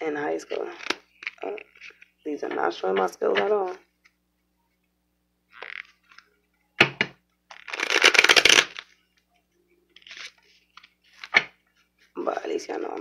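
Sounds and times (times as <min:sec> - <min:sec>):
cards being shuffled: 0:00.5 - 0:04.2, 0:05.5 - 0:09.0, 0:10.0 - 0:12.1.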